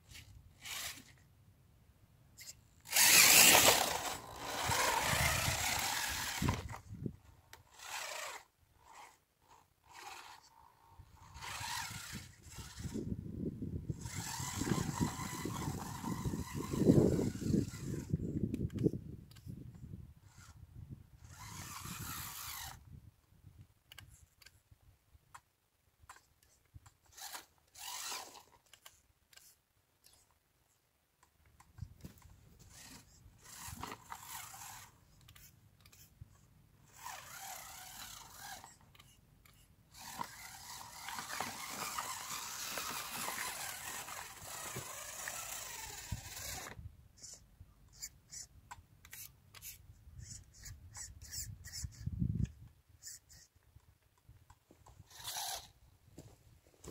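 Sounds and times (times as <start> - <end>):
tyres scraping on dirt: 0.0 - 1.2, 2.4 - 13.1, 14.0 - 18.2, 21.2 - 22.8, 32.0 - 36.2, 36.9 - 46.8, 54.8 - 56.9
toy car motor whirring: 0.0 - 1.3, 2.4 - 13.3, 13.9 - 23.0, 23.9 - 24.6, 26.0 - 30.4, 31.2 - 56.9.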